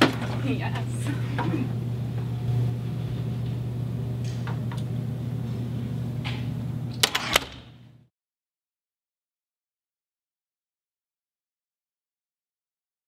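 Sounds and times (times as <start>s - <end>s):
low room hum: 0.0s - 8.1s.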